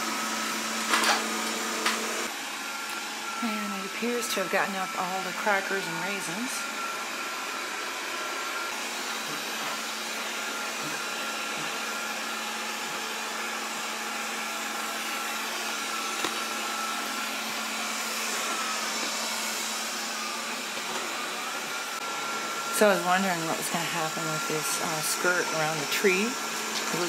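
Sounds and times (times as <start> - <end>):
robot vacuum whirring: 0.0 - 27.0.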